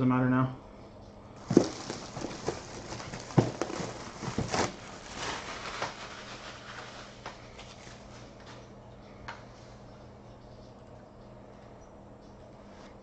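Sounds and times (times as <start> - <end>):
cardboard box knocks: 1.4 - 4.8
plastic wrap crinkling: 1.4 - 8.2.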